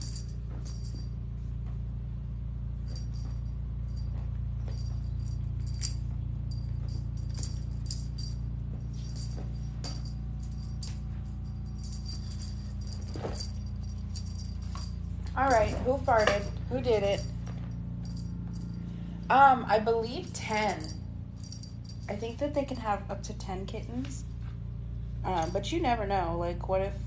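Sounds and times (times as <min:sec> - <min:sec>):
small jingle bell jingling: 0:00.0 - 0:01.5, 0:02.7 - 0:19.0, 0:20.0 - 0:23.0, 0:25.3 - 0:25.7
steady low hum: 0:00.0 - 0:27.0.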